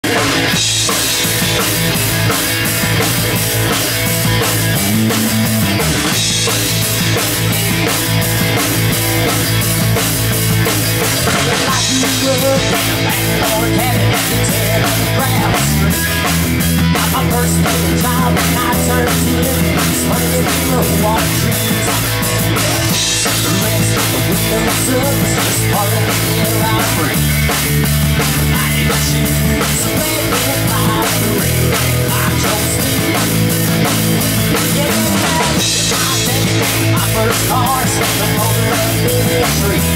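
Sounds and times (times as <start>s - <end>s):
live rock band playing: 0.0s - 39.9s.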